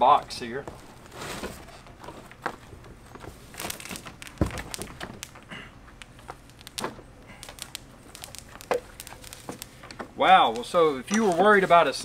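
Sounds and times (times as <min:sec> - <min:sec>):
cardboard box rustling and scraping: 0:01.0 - 0:02.3.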